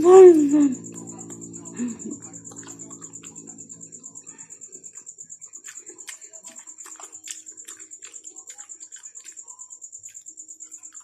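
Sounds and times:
pulsing high-pitched chirp: 0.0s - 5.6s
wet chewing smacks: 5.6s - 10.2s.

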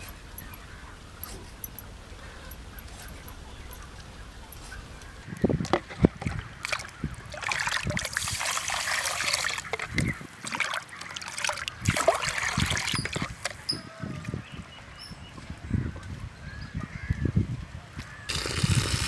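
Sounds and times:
water splashing and trickling: 0.0s - 14.7s
water pouring into a clay pot: 6.0s - 13.6s, 18.3s - 19.0s.

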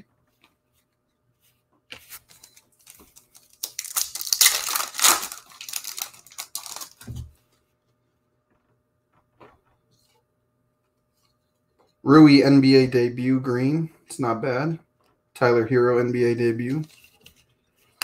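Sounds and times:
foil wrapper tearing and crinkling: 2.8s - 7.1s.

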